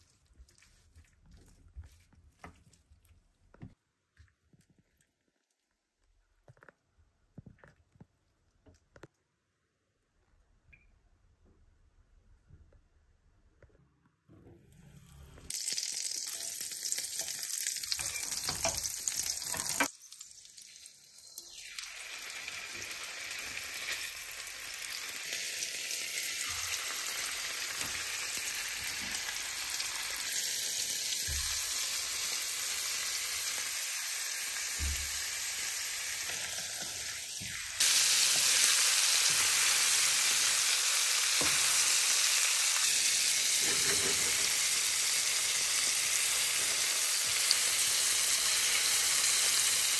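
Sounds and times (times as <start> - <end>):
butter sizzling in frying pan: 15.5 - 49.9
meat frying in bubbling butter: 15.5 - 49.9.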